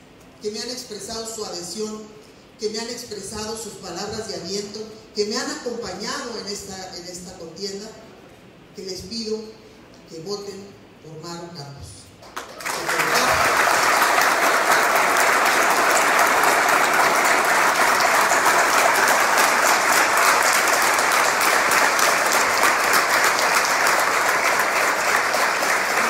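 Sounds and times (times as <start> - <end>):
crowd applauding: 12.2 - 26.0.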